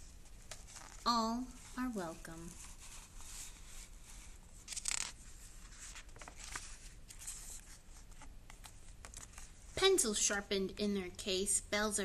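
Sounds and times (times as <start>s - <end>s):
page turning swish: 4.7s - 9.5s
paper rustling and soft taps: 4.8s - 9.6s.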